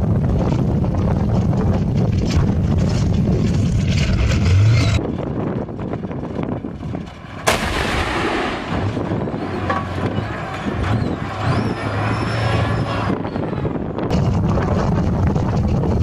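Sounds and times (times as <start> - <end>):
low rumble: 0.0 - 16.0
tank gun firing blast: 7.4 - 9.8.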